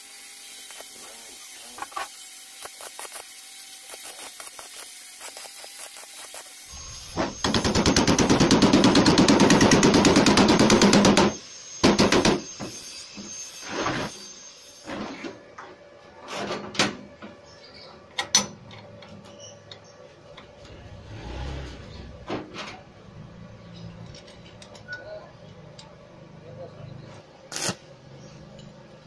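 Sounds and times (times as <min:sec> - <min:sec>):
welding arc crackling: 0:00.0 - 0:07.8, 0:27.5 - 0:27.9.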